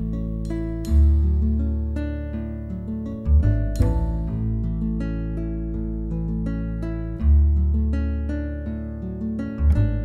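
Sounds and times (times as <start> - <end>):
light plucked tune: 0.0 - 10.0
deep bass note: 3.4 - 4.7.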